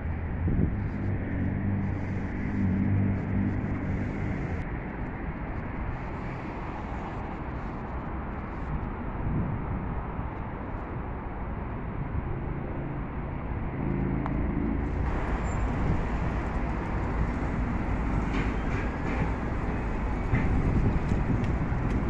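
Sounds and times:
engine hum: 0:00.0 - 0:07.7, 0:13.0 - 0:22.0
low rumble of road traffic: 0:00.0 - 0:22.0.

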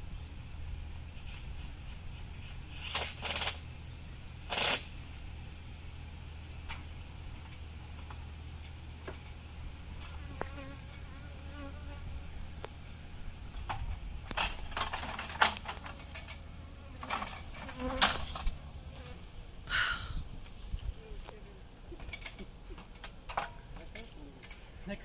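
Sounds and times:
honeybees buzzing: 0:09.7 - 0:13.6, 0:15.5 - 0:19.5.

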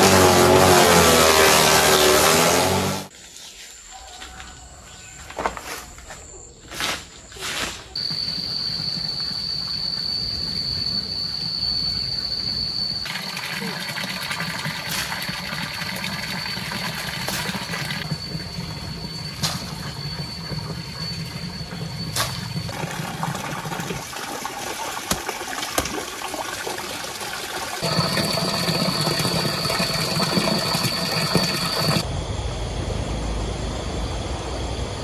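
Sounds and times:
water sloshing and splashing: 0:19.4 - 0:32.0.

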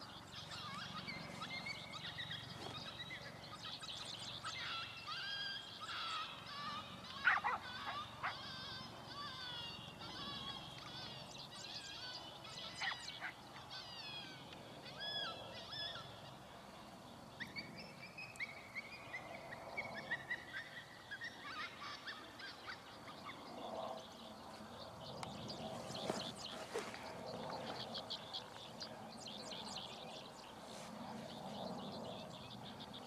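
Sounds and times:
high-pitched animal calls: 0:04.5 - 0:11.2.

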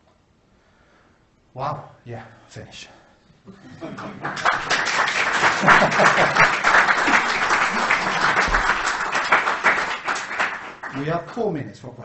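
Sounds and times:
audience applauding: 0:03.7 - 0:11.2.

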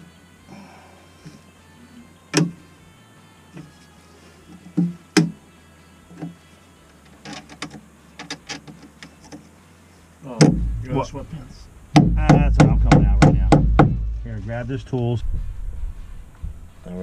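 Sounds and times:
hammer striking nail into wood: 0:10.4 - 0:10.8, 0:11.9 - 0:14.1.

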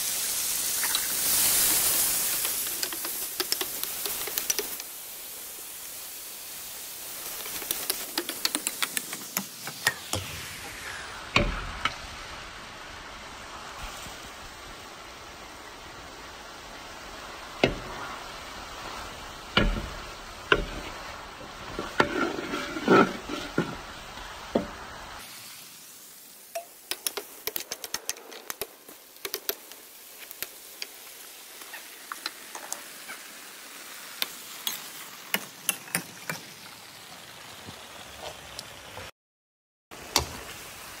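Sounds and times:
food sizzling in a wok: 0:00.0 - 0:39.1, 0:39.9 - 0:41.0
metal spatula scraping a wok: 0:20.5 - 0:24.0.

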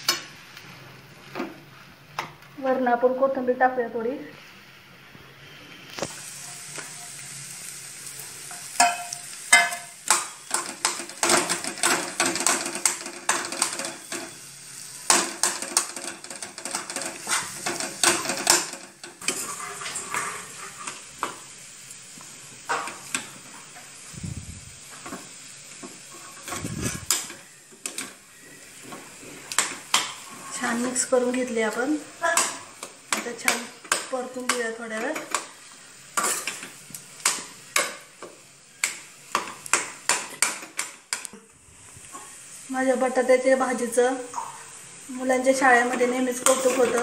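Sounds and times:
faint frying sizzle: 0:00.0 - 0:47.0
spatula scraping steel pan: 0:19.2 - 0:21.0.

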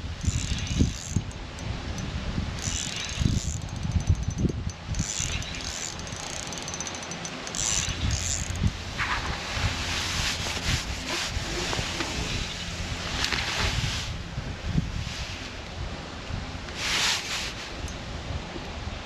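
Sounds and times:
wind on microphone: 0:00.0 - 0:06.5, 0:07.4 - 0:19.0
fishing reel gears ticking: 0:00.2 - 0:08.7.

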